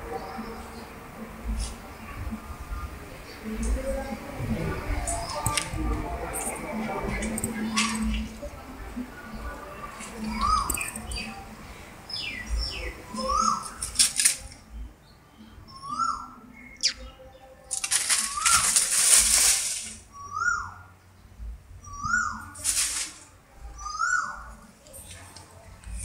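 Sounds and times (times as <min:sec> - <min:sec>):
dry leaves rustling and crackling: 0:01.5 - 0:14.8, 0:17.6 - 0:20.7, 0:22.1 - 0:26.0.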